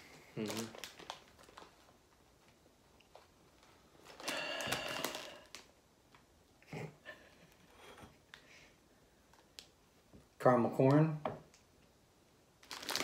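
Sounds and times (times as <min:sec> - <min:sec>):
plastic bag crinkling: 0:00.2 - 0:05.8, 0:12.6 - 0:13.0.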